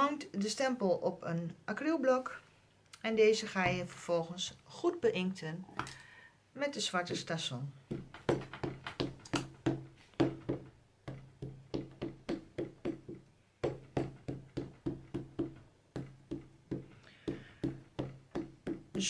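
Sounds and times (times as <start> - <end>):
ink pad tapping on stamp: 7.9 - 19.0.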